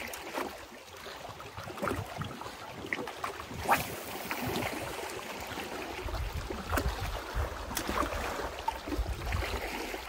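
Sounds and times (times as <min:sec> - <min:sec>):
waves lapping on rocks: 0:00.0 - 0:10.0
wind buffeting microphone: 0:05.9 - 0:10.0.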